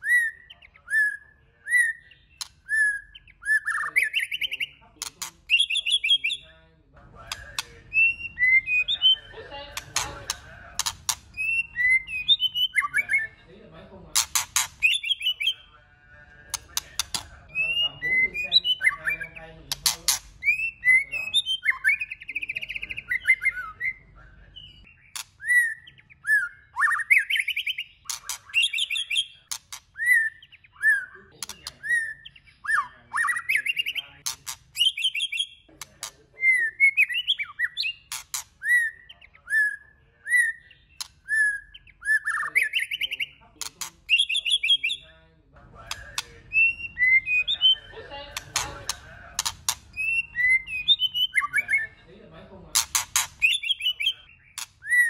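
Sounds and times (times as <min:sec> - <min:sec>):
bird whistling song: 0:00.0 - 0:06.6, 0:07.2 - 0:13.4, 0:14.2 - 0:15.8, 0:16.5 - 0:45.1, 0:45.8 - 0:52.0, 0:52.7 - 0:55.0
bird sharp clicks: 0:07.3 - 0:08.1, 0:09.7 - 0:11.6, 0:14.2 - 0:15.4, 0:16.5 - 0:17.4, 0:38.1 - 0:38.5, 0:41.0 - 0:41.8, 0:45.9 - 0:46.6, 0:48.3 - 0:50.2, 0:52.8 - 0:54.0.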